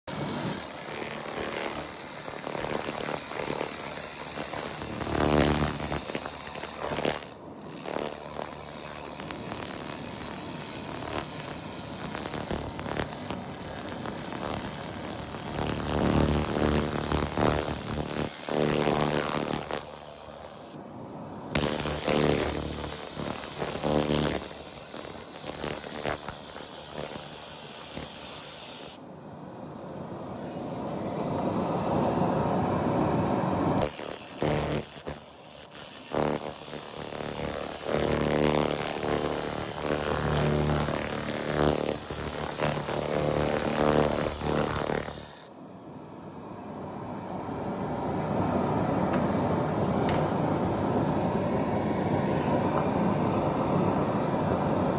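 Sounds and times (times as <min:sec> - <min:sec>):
laser machine buzzing and crackling: 0:00.1 - 0:20.8, 0:21.5 - 0:29.0, 0:33.8 - 0:45.5.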